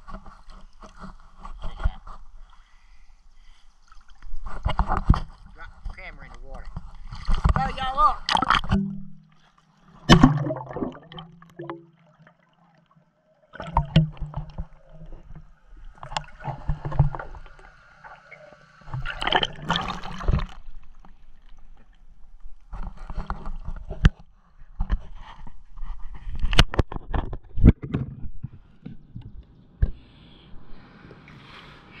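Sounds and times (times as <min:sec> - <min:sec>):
pool water splashing and gurgling: 0:07.1 - 0:22.1.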